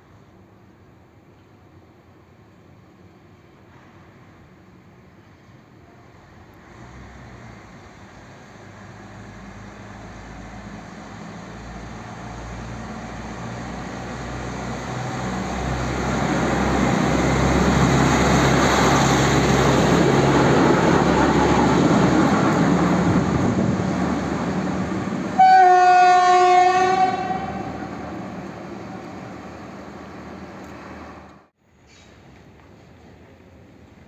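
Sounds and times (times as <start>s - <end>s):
loud steady horn: 25.4s - 28.0s.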